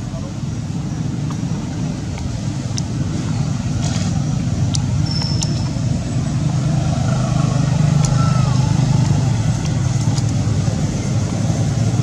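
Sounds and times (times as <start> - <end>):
vehicle engine rumbling: 0.0 - 12.0
faint high clicks: 3.8 - 5.8.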